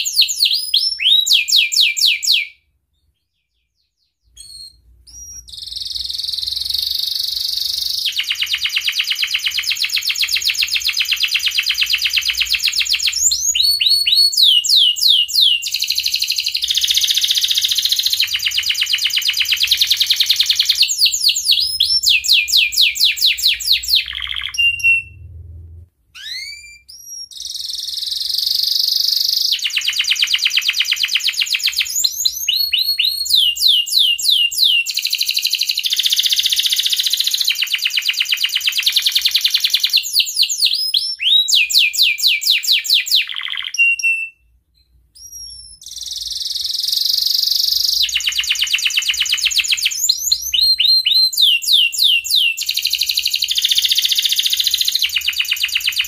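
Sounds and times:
canary singing trills: 0.0 - 44.5, 45.2 - 56.0
upswept chirps: 3.1 - 25.4.

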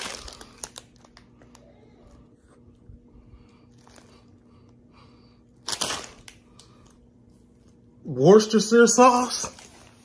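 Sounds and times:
loud packet crinkle: 0.0 - 1.5, 5.6 - 6.4
plastic packet rustling: 0.0 - 1.6, 5.6 - 6.8
faint steady hum: 0.0 - 10.0.

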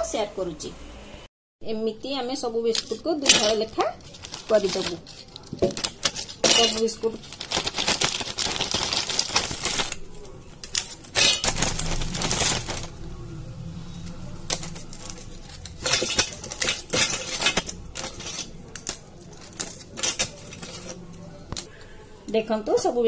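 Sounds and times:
pieces clinking in metal jar: 2.7 - 10.0, 10.6 - 12.9, 14.5 - 21.0
biscuits snapping: 2.8 - 13.1, 14.2 - 21.7.

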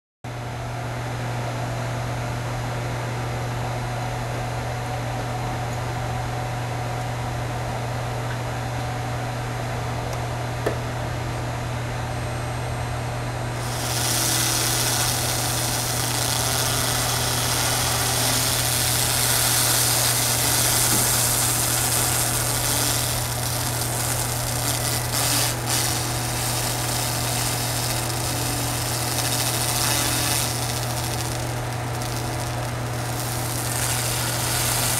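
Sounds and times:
laser cleaning machine hum: 11.9 - 34.9
laser hissing on metal: 13.6 - 34.9.

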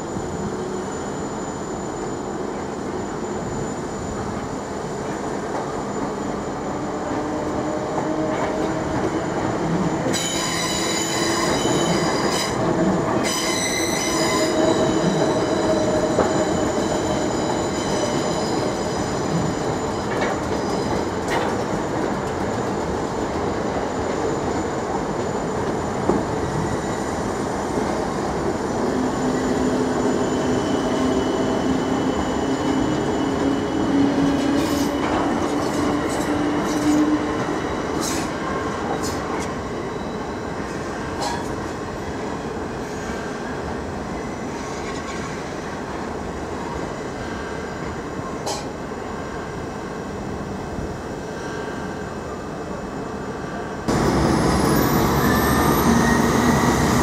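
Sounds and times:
train running noise: 0.0 - 57.0
high-pitched wheel squeal: 13.2 - 20.9, 54.3 - 57.0.

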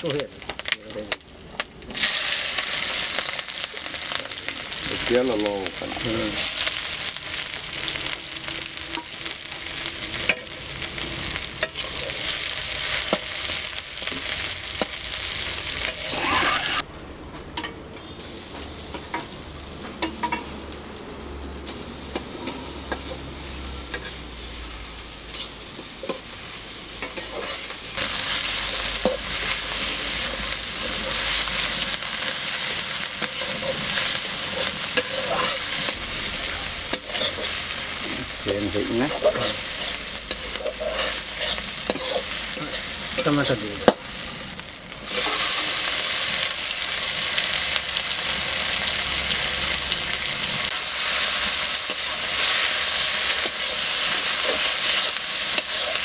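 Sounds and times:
garlic and onion sizzling in oil: 0.0 - 16.8, 18.1 - 56.0
metal spatula scraping wok: 5.8 - 16.8, 21.7 - 26.3, 27.0 - 46.5, 48.2 - 56.0.

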